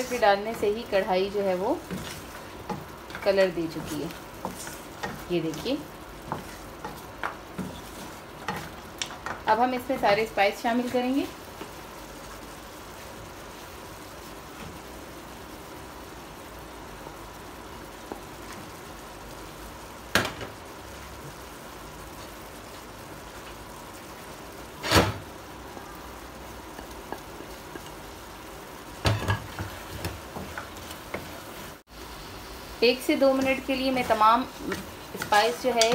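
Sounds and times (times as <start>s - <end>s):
food sizzling in a pan: 0.0s - 35.9s
wooden spoon knocking a pan: 29.0s - 31.3s, 33.3s - 35.9s.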